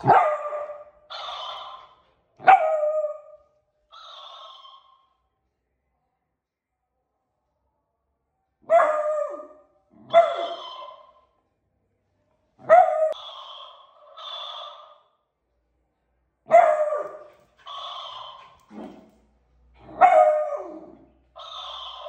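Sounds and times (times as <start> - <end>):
puppy barking: 0.0 - 3.4, 8.6 - 11.2, 12.6 - 15.0, 16.4 - 19.1, 19.8 - 22.0
toy playing back barks: 0.4 - 2.0, 3.1 - 5.2, 10.1 - 11.3, 12.9 - 15.2, 16.7 - 18.7, 21.3 - 22.0.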